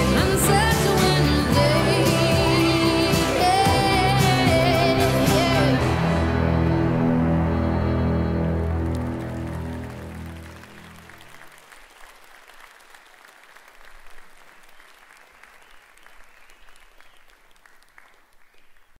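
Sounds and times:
dance music: 0.0s - 10.8s
audience applauding: 8.4s - 19.0s.

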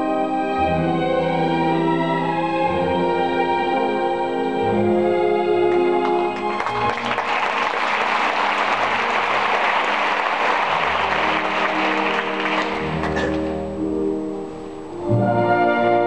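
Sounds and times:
orchestra playing: 0.0s - 16.0s
audience applauding: 5.6s - 13.7s.

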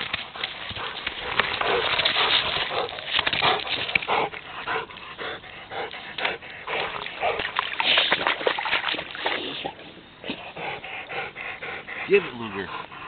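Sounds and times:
splashing in shallow water: 0.0s - 5.1s, 5.8s - 10.5s
dog panting and whimpering: 2.7s - 7.4s, 10.2s - 13.0s.

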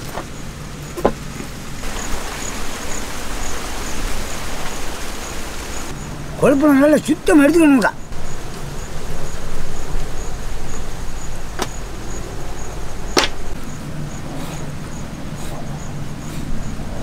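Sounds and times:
faint pulsing insect chirp: 1.6s - 17.0s
steady low rumble: 8.0s - 17.0s.

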